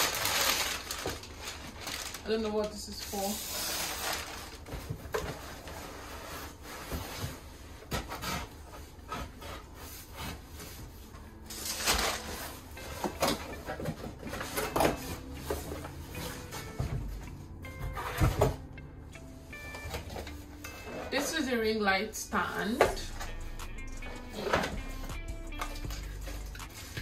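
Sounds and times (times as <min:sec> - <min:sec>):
cardboard boxes scraping: 0:03.0 - 0:17.0.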